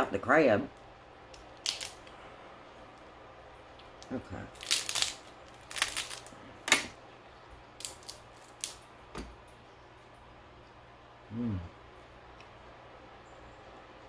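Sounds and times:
crab shell cracking: 0.8s - 2.2s, 3.7s - 6.8s, 7.8s - 8.9s.

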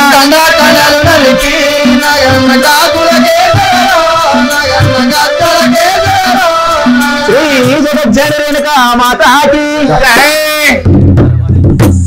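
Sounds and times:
regular drumbeat: 0.0s - 12.0s
wavering ornamented melody: 0.4s - 8.2s.

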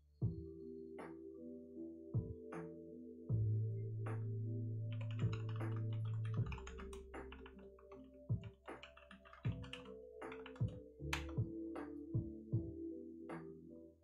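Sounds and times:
quiet background music: 0.0s - 14.0s
typing on computer keyboard: 4.9s - 11.4s.

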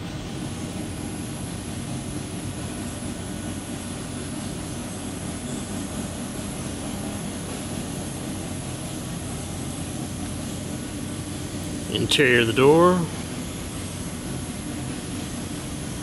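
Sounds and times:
industrial machinery hum: 0.0s - 16.0s.

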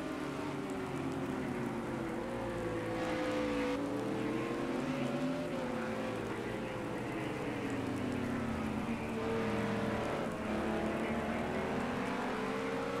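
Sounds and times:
vehicle engines running: 0.0s - 13.0s.

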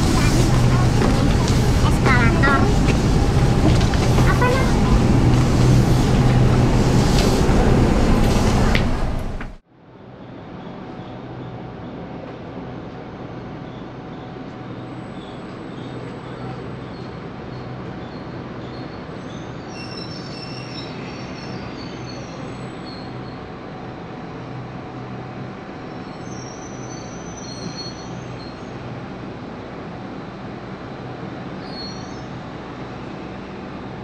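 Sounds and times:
train rumbling with low hum: 0.0s - 34.0s
train wheels squealing: 13.6s - 23.4s, 25.9s - 28.7s, 31.6s - 32.4s.

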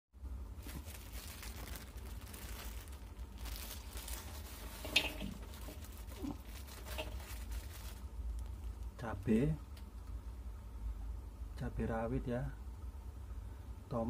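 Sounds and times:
steady low hum: 0.2s - 14.0s
plastic bag crinkling: 0.6s - 9.3s.

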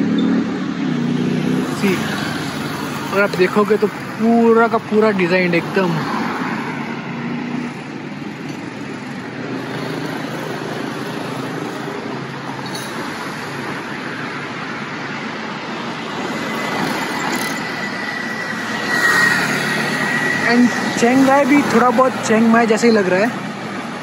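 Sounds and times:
road traffic: 0.0s - 24.0s
thin high tone: 16.2s - 22.3s.

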